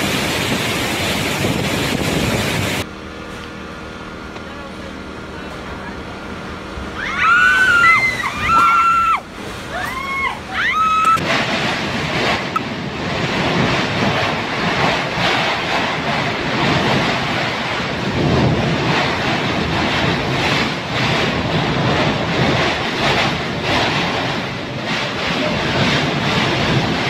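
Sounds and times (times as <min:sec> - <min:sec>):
wind buffeting microphone: 0:00.0 - 0:02.9, 0:06.6 - 0:27.0
storm wind through trees: 0:00.0 - 0:04.3, 0:05.8 - 0:27.0.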